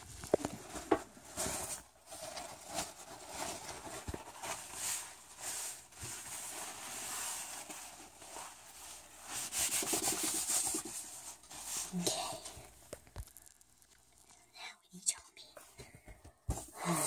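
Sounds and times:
hands smoothing paper: 0:04.4 - 0:12.1.

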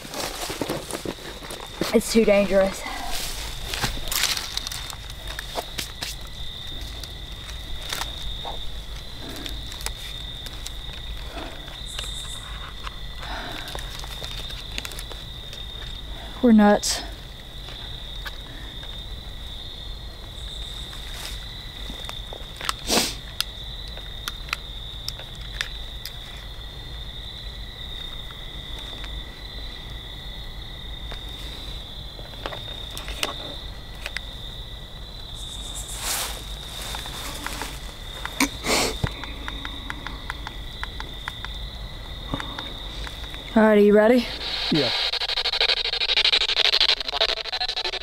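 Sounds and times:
handling clicks and rustles: 0:00.0 - 0:16.0
crickets trilling: 0:00.0 - 0:48.0.

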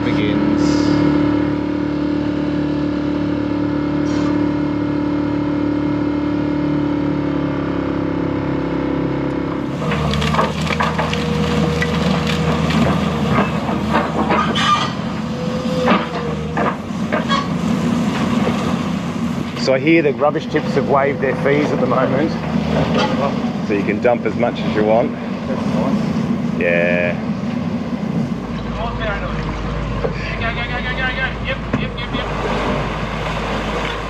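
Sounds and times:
outboard motor running: 0:00.0 - 0:34.0
knocks and clatter of debris: 0:09.8 - 0:18.8, 0:21.6 - 0:23.6.

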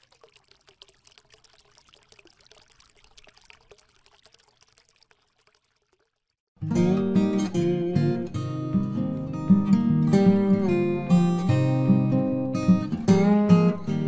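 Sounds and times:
water trickling and pouring: 0:00.0 - 0:06.5
acoustic guitar strum: 0:06.6 - 0:14.0.

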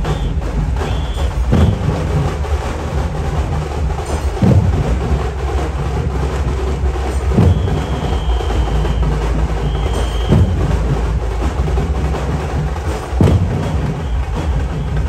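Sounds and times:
shrill whistle blasts: 0:00.0 - 0:02.2, 0:07.3 - 0:11.2, 0:13.6 - 0:15.0
festival drumming: 0:00.0 - 0:15.0.

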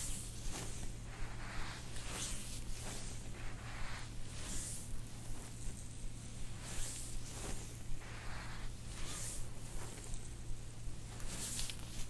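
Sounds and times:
breath-like hiss: 0:00.0 - 0:05.6, 0:06.3 - 0:10.0
hands and clothing rustling: 0:00.0 - 0:12.0
steady low hum: 0:00.0 - 0:12.0.

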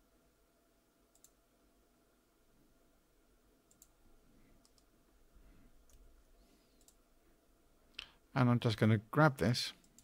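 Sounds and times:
faint computer mouse clicks: 0:01.1 - 0:01.4, 0:03.7 - 0:04.0, 0:04.6 - 0:04.9, 0:06.8 - 0:07.0, 0:09.8 - 0:10.0.

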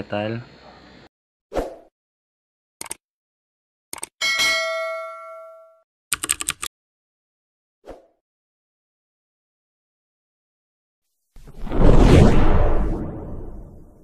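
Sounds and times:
bright bell ding: 0:04.2 - 0:05.8.

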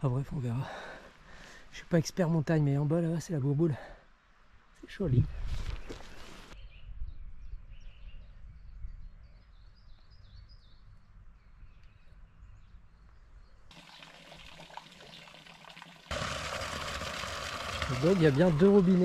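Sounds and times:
small birds chirping: 0:04.0 - 0:14.0
water running from tap: 0:13.7 - 0:19.0.

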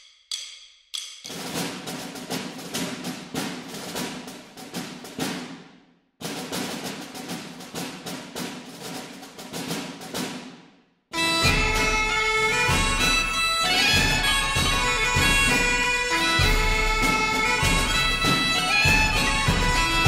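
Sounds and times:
steady drum strikes: 0:00.0 - 0:20.0
bagpipes over a drone: 0:11.2 - 0:20.0.

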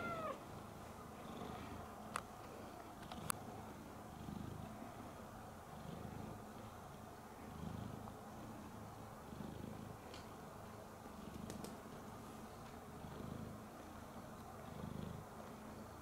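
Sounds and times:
cat purring: 0:00.0 - 0:16.0
faint clicks: 0:11.3 - 0:11.8.

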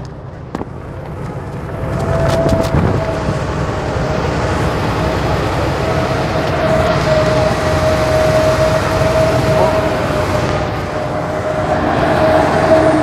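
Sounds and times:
bus engine and road noise: 0:00.0 - 0:13.0
steady whine: 0:00.0 - 0:13.0.

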